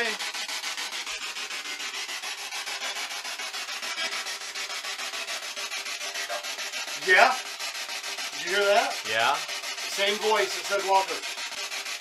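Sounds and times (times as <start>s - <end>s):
rapid chopped radio static: 0.0s - 12.0s.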